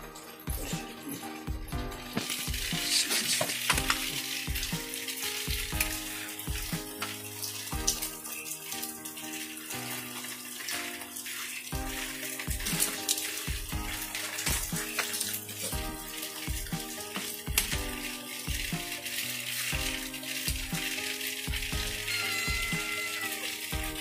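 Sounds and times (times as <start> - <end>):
instrumental background music: 0.0 - 24.0.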